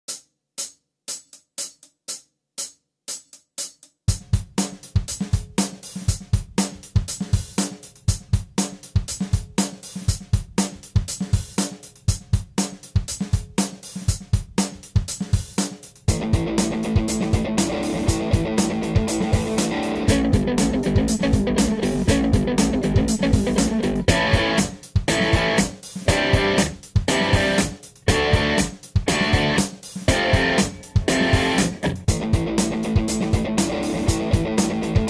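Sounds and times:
drum kit beat: 0:00.0 - 0:35.0
hi-hat ticking: 0:00.1 - 0:35.0.

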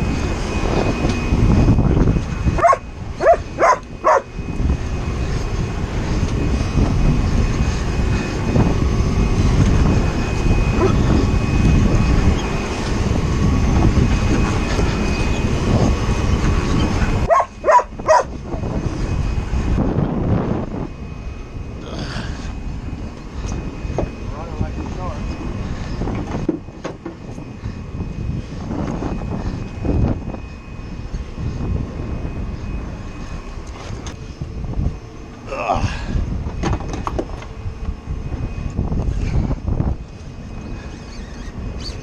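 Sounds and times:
boat noise: 0:00.0 - 0:42.0
wind rumble: 0:00.0 - 0:42.0
dog barking: 0:02.6 - 0:04.3, 0:17.3 - 0:18.3.

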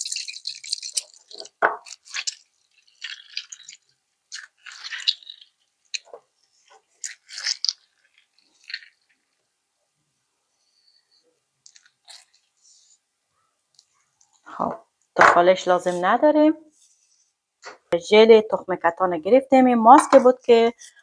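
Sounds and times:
wet squelches: 0:00.0 - 0:09.5.

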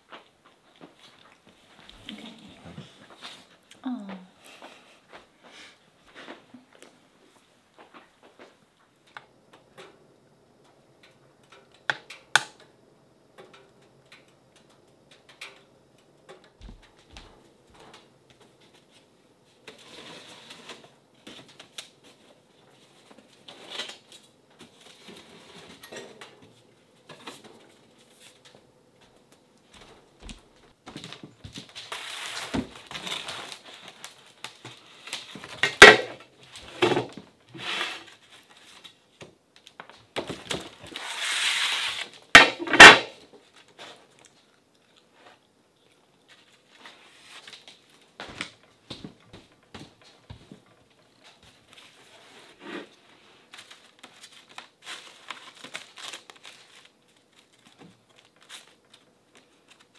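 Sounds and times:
metal trays clattering: 0:35.6 - 0:36.2, 0:42.4 - 0:43.2.

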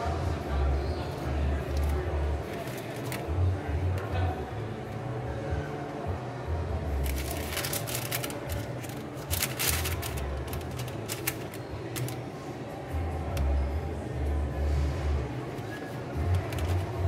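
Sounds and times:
paper liner sheets rustling: 0:01.7 - 0:03.3, 0:07.0 - 0:12.3, 0:15.6 - 0:17.0.

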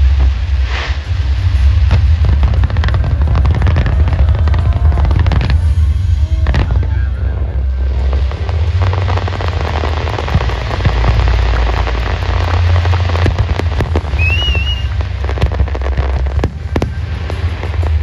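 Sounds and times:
fireworks booming: 0:00.0 - 0:18.0
fireworks popping: 0:00.0 - 0:18.0
wavering whistle: 0:14.1 - 0:15.0.

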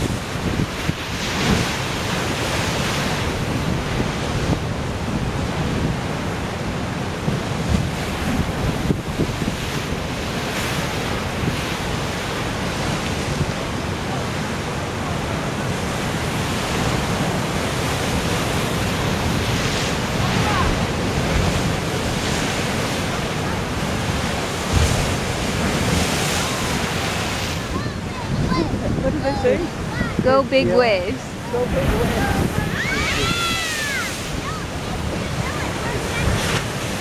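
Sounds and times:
ocean surf crashing on rocks: 0:00.0 - 0:37.0
wind buffeting microphone: 0:00.0 - 0:37.0
wave slamming: 0:16.9 - 0:37.0.

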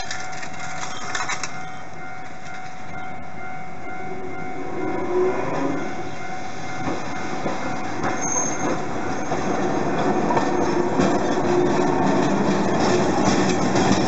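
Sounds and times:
tram wheels clacking over rail joints: 0:00.0 - 0:03.6, 0:05.5 - 0:14.0
high wheel squeal: 0:07.2 - 0:09.6, 0:10.3 - 0:14.0.

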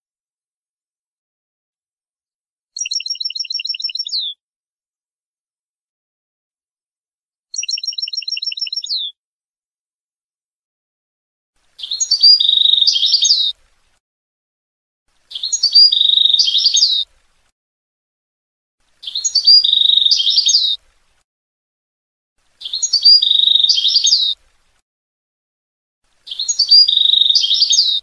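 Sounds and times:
goldfinch twittering song: 0:02.8 - 0:04.4, 0:07.5 - 0:09.2, 0:11.7 - 0:13.6, 0:15.2 - 0:17.1, 0:18.9 - 0:20.8, 0:22.5 - 0:24.4, 0:26.2 - 0:28.0.

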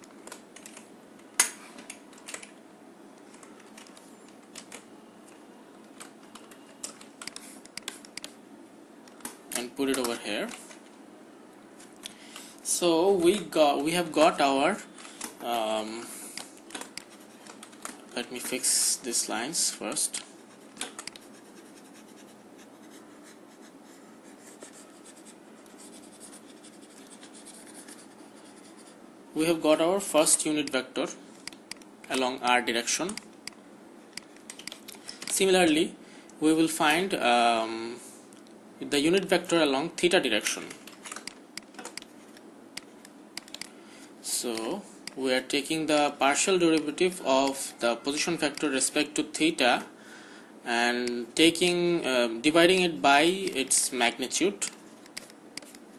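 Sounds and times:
faint steady hiss: 0:00.0 - 0:55.9
computer input clicks: 0:05.9 - 0:08.4, 0:42.8 - 0:43.7
stylus scratching on tablet: 0:16.9 - 0:17.7, 0:20.2 - 0:29.0.

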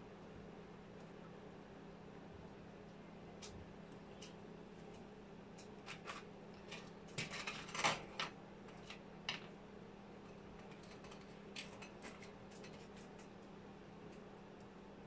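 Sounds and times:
faint steady hum: 0:00.0 - 0:15.0
small parts clicking and clattering: 0:05.6 - 0:09.6, 0:10.3 - 0:13.5.

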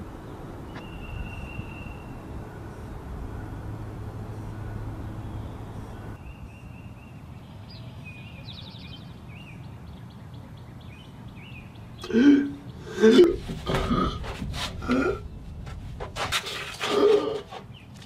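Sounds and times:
small birds chirping: 0:00.0 - 0:13.5.

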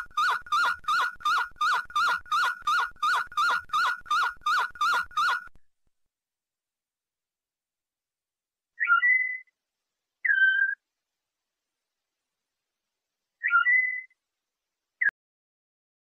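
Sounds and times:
canary singing whistled notes: 0:00.0 - 0:05.5, 0:08.8 - 0:09.6, 0:10.2 - 0:10.8, 0:13.4 - 0:14.2.

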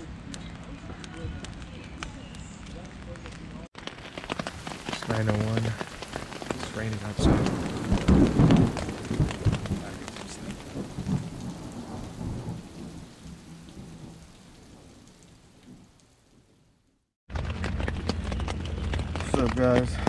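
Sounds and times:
rain falling: 0:00.0 - 0:20.0
rolling thunder: 0:04.5 - 0:16.0.

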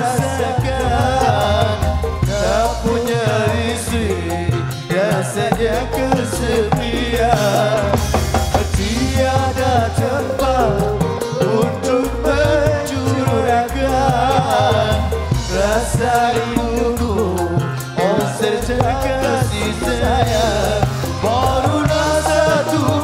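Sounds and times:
live band music: 0:00.0 - 0:23.0
steady drum beat: 0:00.0 - 0:23.0.

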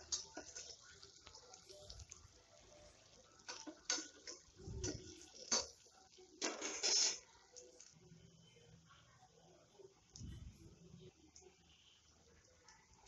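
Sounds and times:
food frying: 0:00.0 - 0:08.0.

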